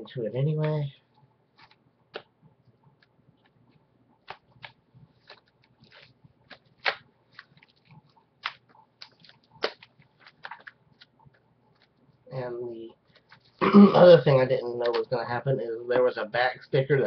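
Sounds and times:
plastic shrink-wrap crinkling: 4.2 - 12.1.

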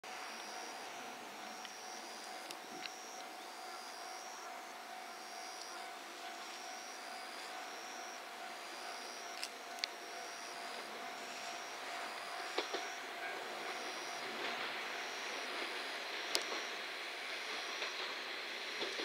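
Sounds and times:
train running noise: 0.0 - 19.0
level crossing alarm ringing: 0.1 - 18.3
sharp clicks: 12.2 - 13.0, 16.2 - 16.7.

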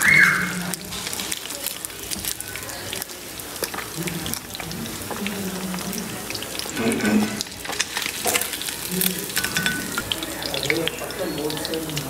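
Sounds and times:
fish sizzling in hot oil: 0.0 - 12.0
steel skimmer scraping: 6.7 - 8.6.

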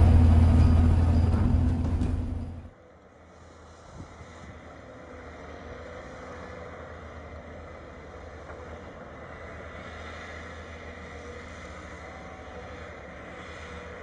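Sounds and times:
excavator diesel engine running: 0.0 - 2.7.

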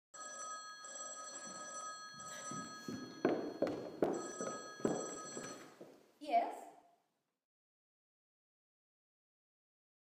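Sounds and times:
telephone bell ringing: 0.2 - 5.8.

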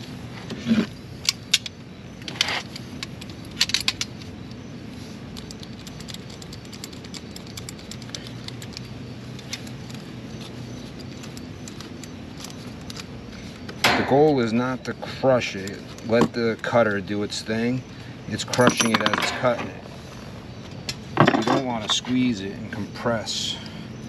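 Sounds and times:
metallic clinks of tubing and tools: 18.4 - 19.8.

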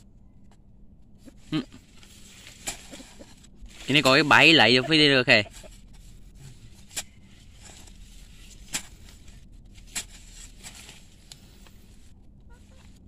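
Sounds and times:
spade striking soil: 6.8 - 11.4.

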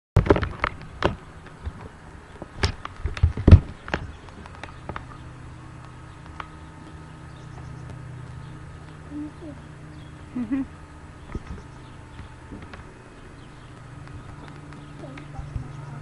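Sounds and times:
knocks and bumps of handled webcam: 0.2 - 5.1
steady low hum: 0.2 - 16.0.

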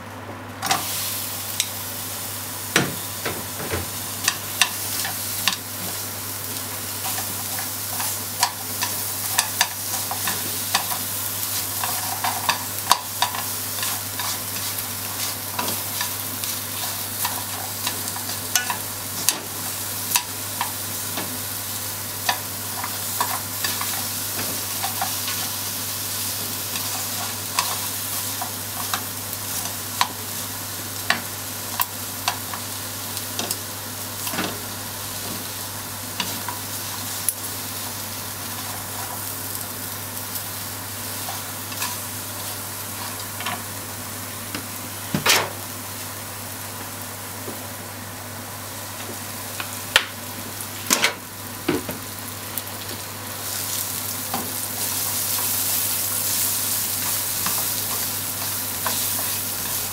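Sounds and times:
meat and onion sizzling in a pan: 0.6 - 59.9
chopsticks tapping a pan: 2.8 - 5.7, 7.0 - 21.4, 22.2 - 25.6, 26.7 - 30.2, 31.0 - 32.7, 54.3 - 59.9.

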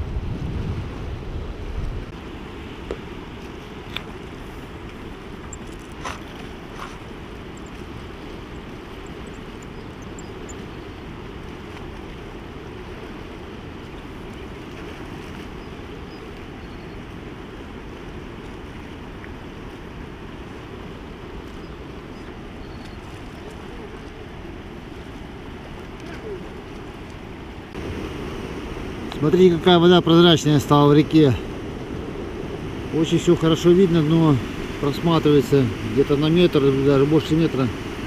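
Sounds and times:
wind on microphone: 0.0 - 29.2
river water washing: 0.0 - 38.0.

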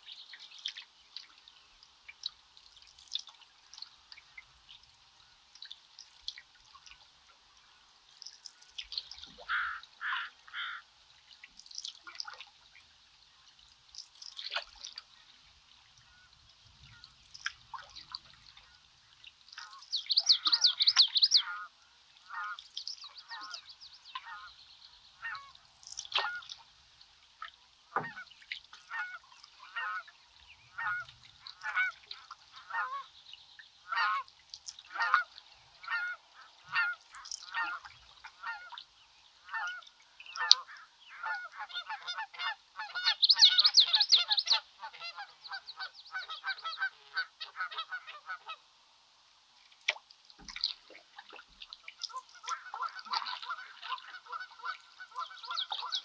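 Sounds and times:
geese honking: 9.4 - 10.8, 28.9 - 30.1, 30.7 - 33.1, 33.9 - 34.3, 34.9 - 38.8, 39.5 - 48.6, 52.0 - 56.0.

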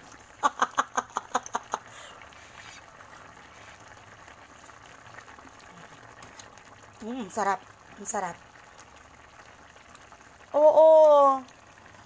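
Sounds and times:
stew bubbling in a pot: 0.0 - 12.0
woman laughing: 0.4 - 2.1.

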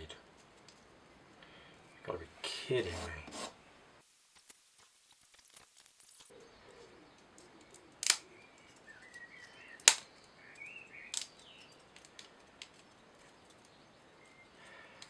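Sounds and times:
wooden parts clicking together: 7.2 - 13.8.

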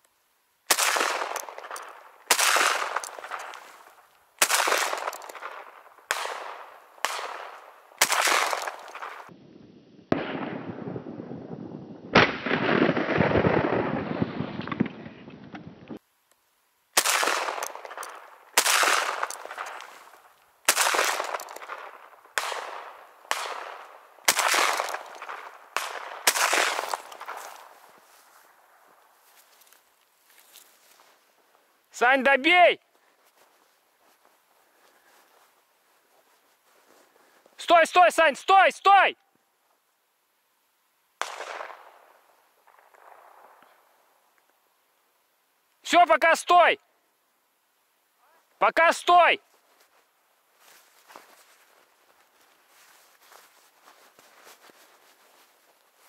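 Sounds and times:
shotgun shots echoing: 0.7 - 3.8, 4.4 - 9.3, 10.1 - 11.1, 12.1 - 14.8, 17.0 - 20.0, 20.7 - 27.7, 41.2 - 43.5.

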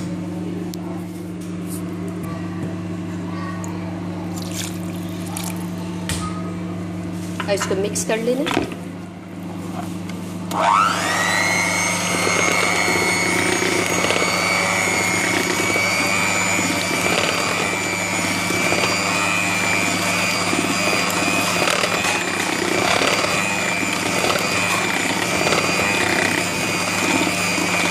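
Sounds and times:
electric hand mixer whine: 10.5 - 27.9
beaters whisking batter: 11.4 - 27.9.

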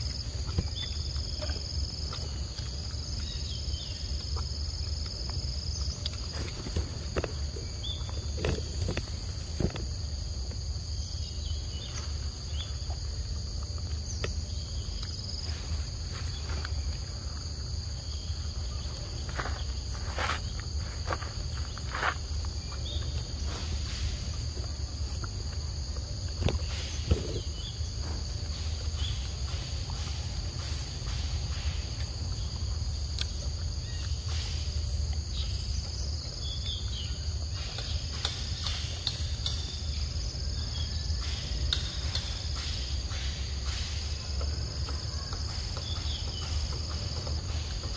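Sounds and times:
monkey chewing fruit: 0.0 - 9.9
insects buzzing: 0.0 - 47.9.

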